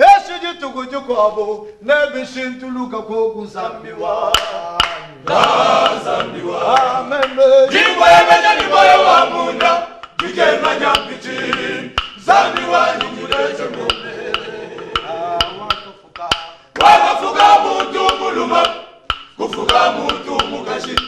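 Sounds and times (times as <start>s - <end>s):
male choir singing: 3.1s - 21.0s.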